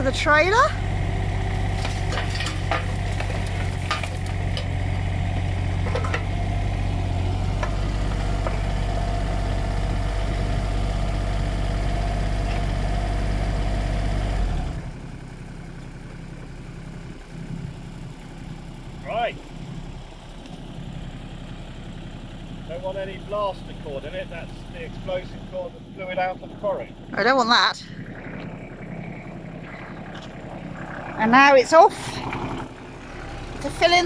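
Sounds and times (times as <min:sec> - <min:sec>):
diesel engine running: 0:00.0 - 0:34.0
gravel clattering into trailer: 0:01.7 - 0:04.8
hydraulic whine: 0:27.2 - 0:34.0.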